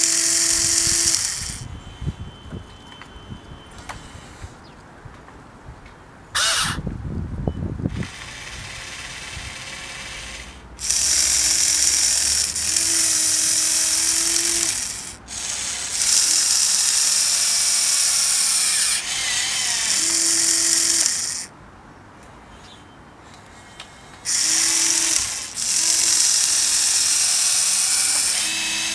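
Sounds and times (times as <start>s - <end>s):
electric motors whining: 0.0s - 2.7s, 6.4s - 6.8s, 7.9s - 21.5s, 24.3s - 28.9s.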